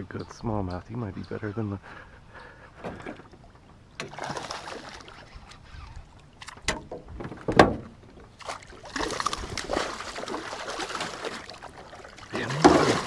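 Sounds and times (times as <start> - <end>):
landing net into water: 4.0 - 13.0
fish splashing at surface: 8.4 - 13.0.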